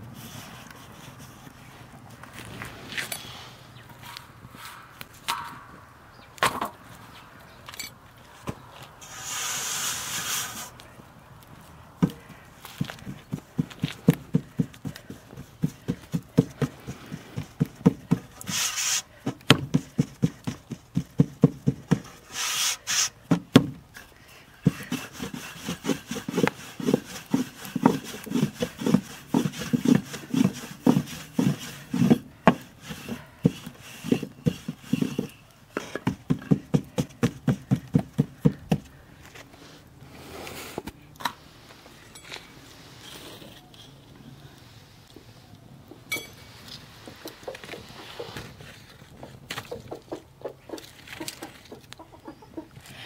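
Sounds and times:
brief hissing: 9.0s - 10.7s, 18.5s - 19.1s.

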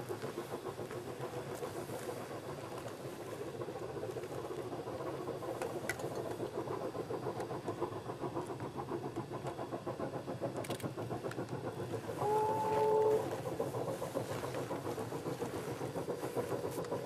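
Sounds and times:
steam locomotive chuffing: 0.0s - 17.0s
steam whistle chord: 12.2s - 13.4s.

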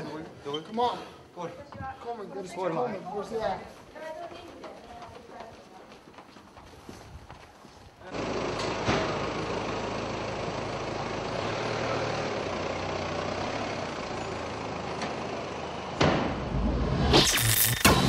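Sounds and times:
minibus engine running: 8.1s - 17.0s
sudden loud noise: 16.0s - 18.0s.

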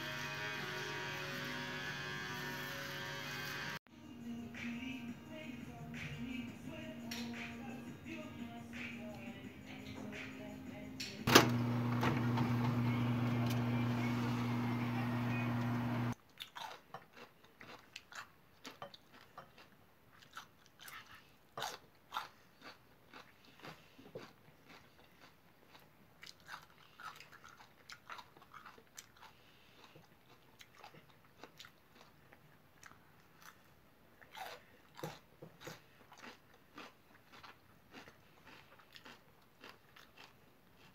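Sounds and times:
oven electric hum: 11.3s - 16.2s
person chewing crunchy pepper: 16.2s - 40.9s.

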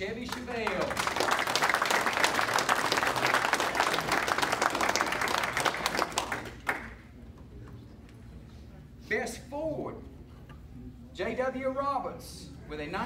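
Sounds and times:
audience applauding: 0.3s - 7.0s.

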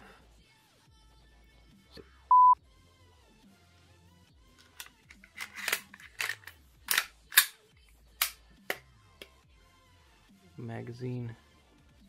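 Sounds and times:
faint background music: 0.0s - 12.0s
pistol slide clicking and rattling: 4.6s - 7.6s, 8.2s - 8.8s.

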